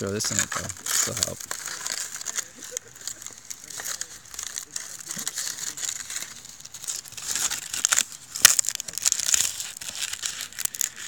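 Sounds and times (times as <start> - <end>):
campfire crackling and hissing: 0.0 - 11.0
fire popping: 0.0 - 11.0.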